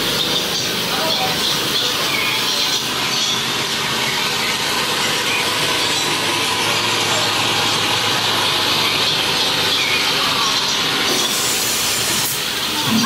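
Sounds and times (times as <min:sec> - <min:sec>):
train car rushing through tunnel: 0:00.0 - 0:13.0.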